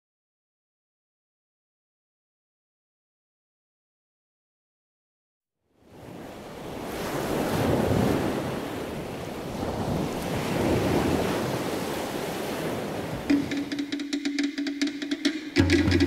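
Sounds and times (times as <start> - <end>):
ocean surf breaking: 5.9 - 16.0.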